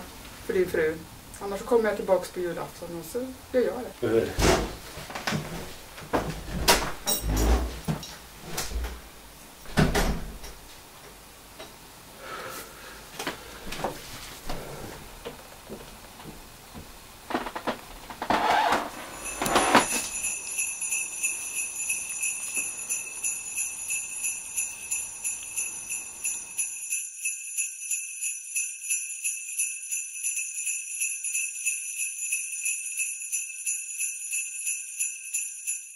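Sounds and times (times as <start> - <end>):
sleigh bells shaken: 18.9 - 35.9.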